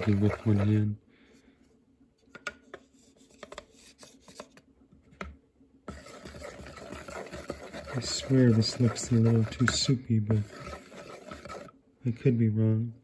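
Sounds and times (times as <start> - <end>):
spatula scraping ceramic bowl: 0.0 - 0.8, 5.9 - 11.7.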